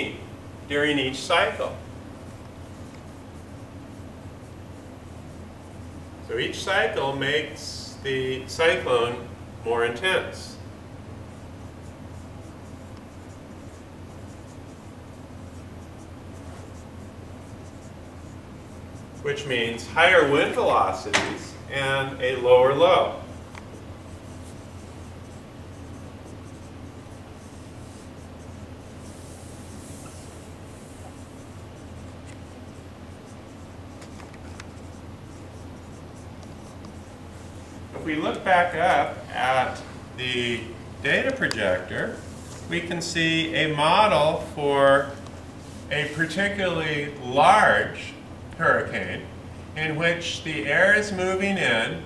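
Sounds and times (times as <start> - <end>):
low room hum: 0.0 - 52.0
marker squeaking on whiteboard: 11.3 - 39.8.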